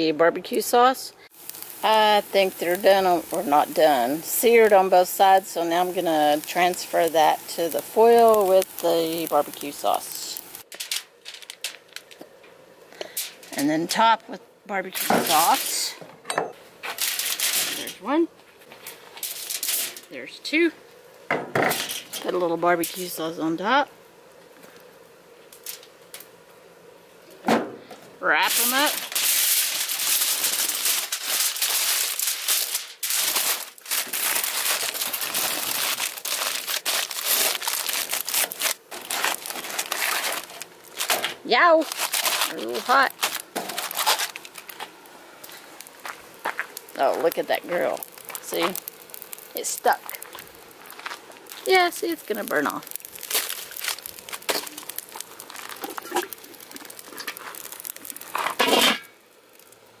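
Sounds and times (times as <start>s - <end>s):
aluminum foil crinkling: 1.3s - 14.1s, 14.8s - 16.0s, 16.8s - 20.3s, 20.9s - 23.5s, 24.4s - 26.4s, 28.2s - 60.0s
metal grill lid scraping and clanking: 57.1s - 59.2s.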